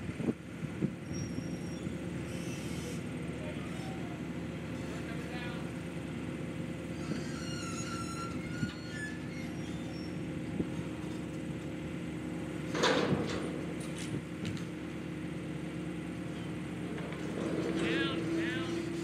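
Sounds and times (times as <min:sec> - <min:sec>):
excavator diesel engine running: 0:00.0 - 0:19.0
loud scraping noise: 0:17.0 - 0:19.0.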